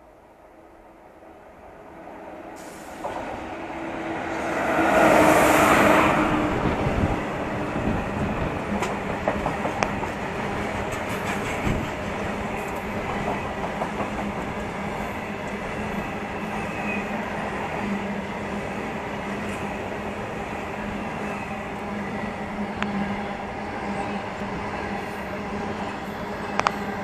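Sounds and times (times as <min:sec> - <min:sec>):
train rushing past: 0:01.8 - 0:27.0
wheels clacking on rails: 0:04.3 - 0:17.0.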